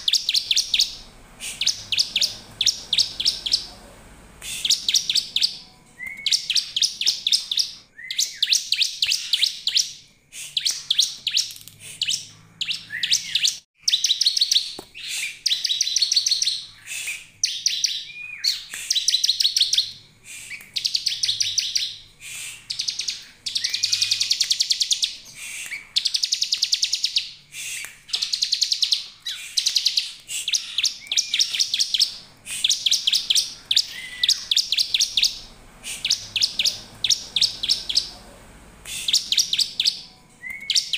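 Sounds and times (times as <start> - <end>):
bird buzzy trilled calls: 0.0 - 3.8, 4.4 - 9.7, 12.1 - 38.2.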